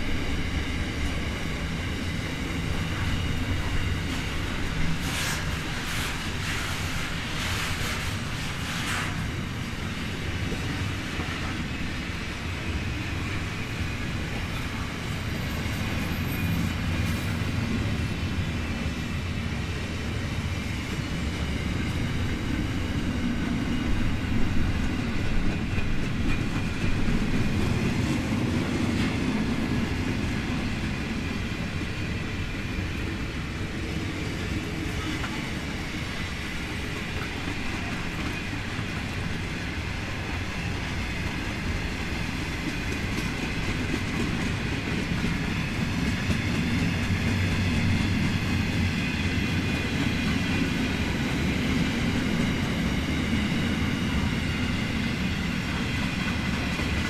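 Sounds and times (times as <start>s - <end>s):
freight train wheels rumbling on rail: 0.0s - 57.0s
sharp train knocks: 23.1s - 30.5s.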